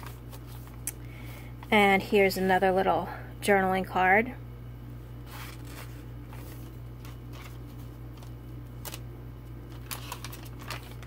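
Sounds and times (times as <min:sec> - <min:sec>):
paper pages rustling: 0:00.0 - 0:00.8, 0:05.2 - 0:09.0, 0:09.6 - 0:11.0
steady low hum: 0:00.0 - 0:11.0.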